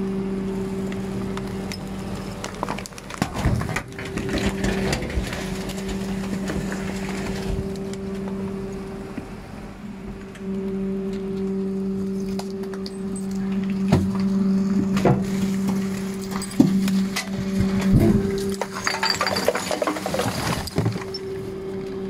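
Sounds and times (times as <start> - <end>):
garbage truck hydraulic hum: 0.0 - 22.0
compactor clanks and crunching: 1.4 - 8.6, 12.2 - 21.5.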